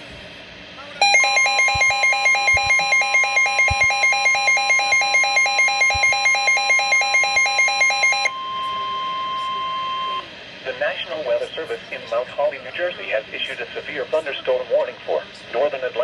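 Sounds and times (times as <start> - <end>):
electronic warbling alarm: 1.0 - 10.2
steady warning alert tone: 1.0 - 10.2.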